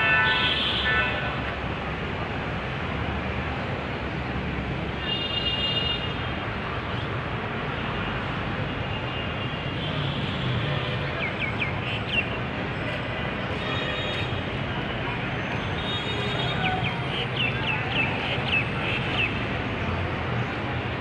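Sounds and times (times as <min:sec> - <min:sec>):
city traffic noise: 0:00.0 - 0:21.0.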